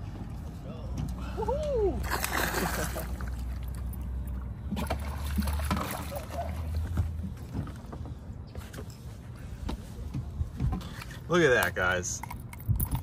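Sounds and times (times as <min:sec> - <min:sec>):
water splashing: 0:01.9 - 0:07.2.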